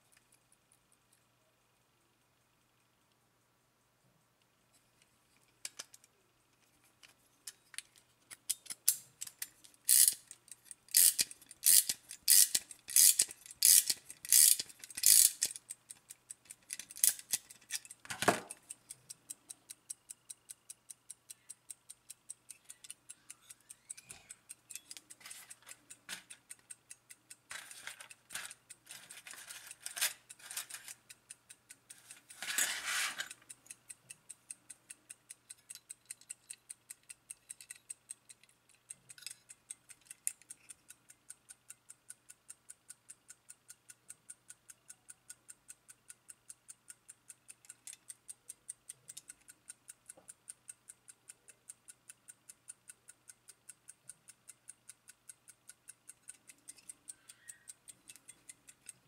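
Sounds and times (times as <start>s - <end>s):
clock winding ratchet clicks: 7.5s - 59.0s
clock ticking rapidly: 9.9s - 29.0s, 33.3s - 59.0s.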